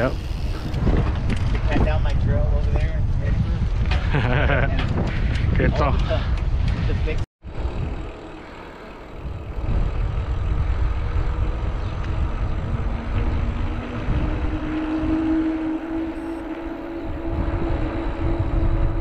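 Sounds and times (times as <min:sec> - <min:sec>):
bike rolling on pavement: 0:00.0 - 0:19.0
wind buffeting microphone: 0:00.0 - 0:19.0.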